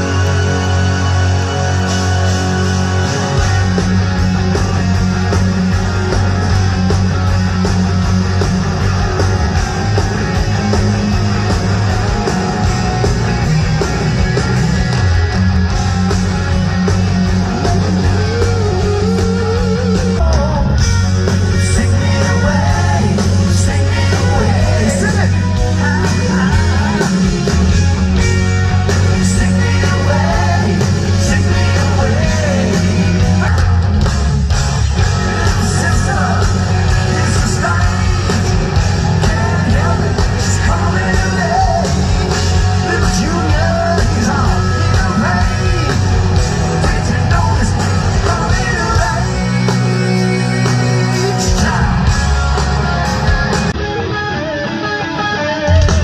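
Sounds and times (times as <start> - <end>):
live rock band playing: 0.0 - 56.0
man singing lead vocal: 18.2 - 34.0, 35.0 - 52.7.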